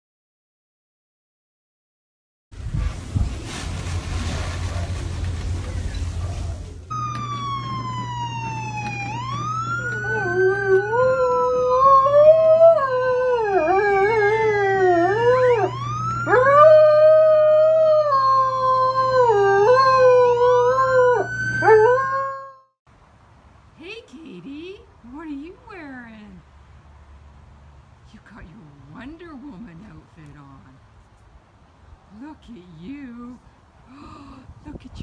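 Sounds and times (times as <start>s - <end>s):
wailing siren: 6.9s - 22.7s
dog howling: 9.8s - 22.5s.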